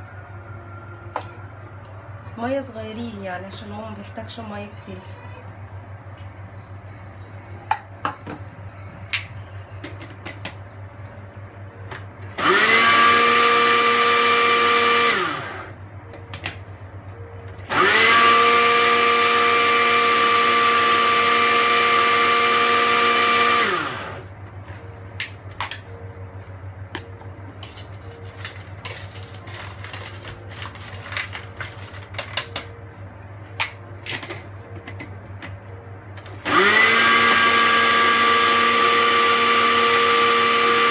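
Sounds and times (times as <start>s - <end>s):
blender motor running: 12.4s - 15.8s, 17.7s - 24.3s, 36.4s - 40.9s.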